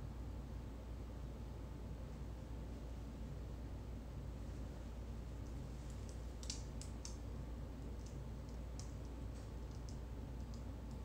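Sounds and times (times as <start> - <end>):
low room hum: 0.0 - 11.0
small clicks: 8.0 - 11.0.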